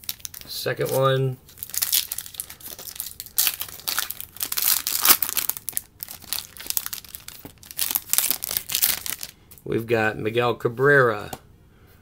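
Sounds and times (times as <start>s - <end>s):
plastic wrapper crinkling and tearing: 0.0s - 9.4s.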